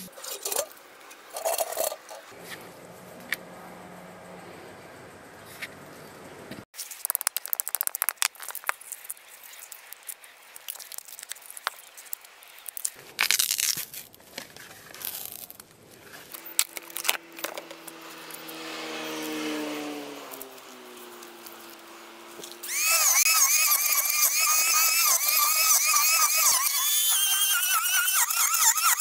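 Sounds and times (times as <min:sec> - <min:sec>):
plastic mould crackling and popping: 0:06.8 - 0:17.8
tearing scrape: 0:08.2 - 0:18.6, 0:20.2 - 0:29.0.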